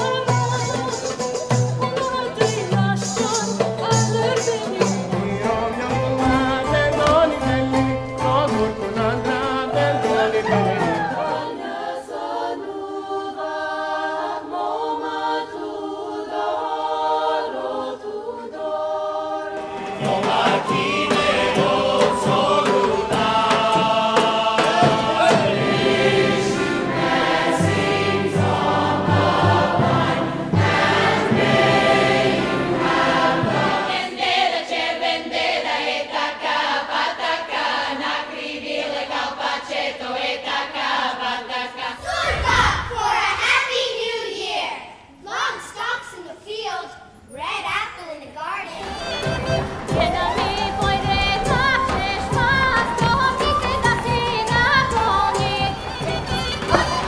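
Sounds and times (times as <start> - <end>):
choir singing folk song: 2.3 - 44.9, 48.8 - 57.0
plucked ouds: 3.6 - 11.5, 48.8 - 57.0.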